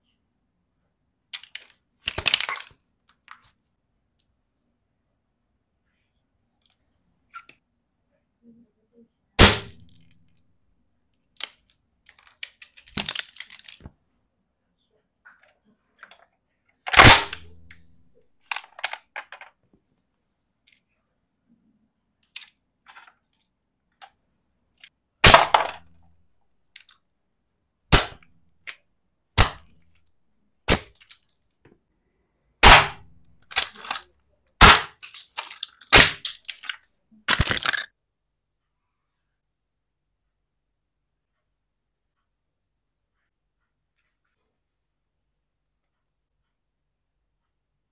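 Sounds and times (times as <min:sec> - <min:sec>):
plastic toys cracking under boot: 0:01.3 - 0:03.4, 0:11.3 - 0:14.0, 0:16.9 - 0:19.6, 0:22.2 - 0:23.2, 0:24.8 - 0:26.1, 0:26.7 - 0:27.0, 0:27.9 - 0:28.8, 0:29.4 - 0:30.0, 0:30.7 - 0:31.5, 0:32.6 - 0:37.9
broken pieces rattling: 0:11.4 - 0:13.9, 0:34.8 - 0:37.9.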